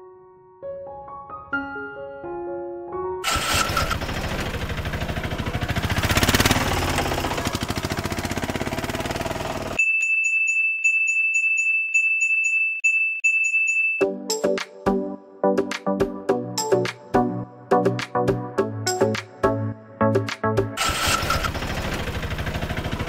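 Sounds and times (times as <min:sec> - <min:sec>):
background music: 0:00.0 - 0:03.3, 0:14.0 - 0:21.2
truck engine pulsing: 0:03.2 - 0:09.8, 0:20.8 - 0:23.0.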